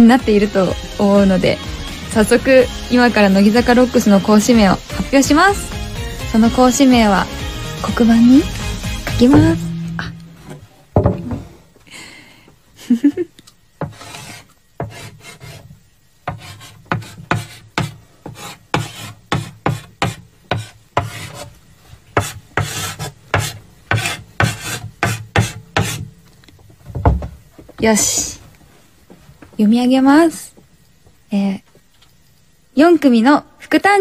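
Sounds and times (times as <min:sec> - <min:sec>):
chalk scratching on chalkboard: 0:13.8 - 0:21.5, 0:22.2 - 0:26.0.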